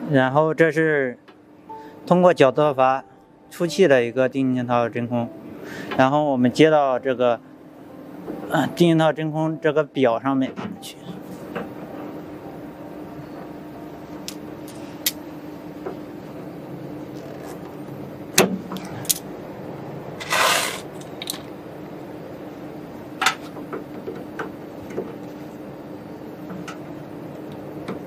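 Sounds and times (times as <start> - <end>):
steady low hum: 0.0 - 28.0
tube scraping rustle: 20.2 - 21.0.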